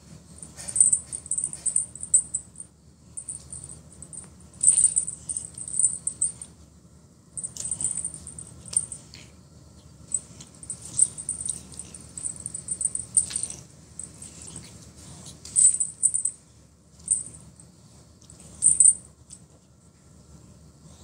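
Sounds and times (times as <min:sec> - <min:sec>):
cat toy rattling ticks: 0:00.5 - 0:02.6, 0:03.2 - 0:06.5, 0:07.4 - 0:09.2, 0:10.1 - 0:16.3.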